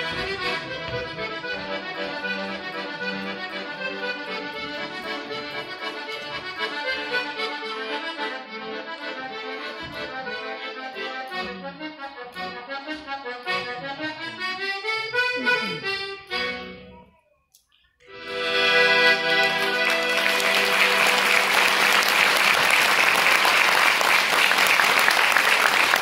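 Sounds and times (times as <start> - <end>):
accordion playing: 0.0 - 17.1, 18.0 - 26.0
audience applause: 18.4 - 26.0.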